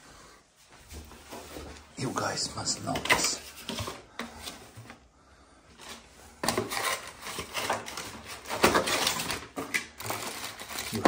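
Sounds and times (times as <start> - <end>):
cardboard and tissue paper rustling: 5.8 - 11.0.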